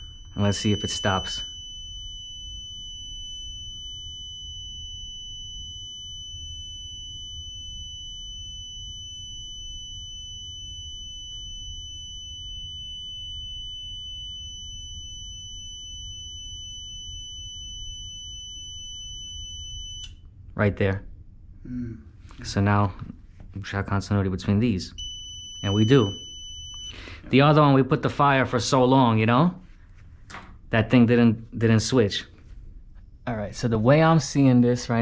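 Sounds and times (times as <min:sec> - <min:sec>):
high-pitched continuity beep: 0:00.0 - 0:20.1, 0:25.0 - 0:28.2.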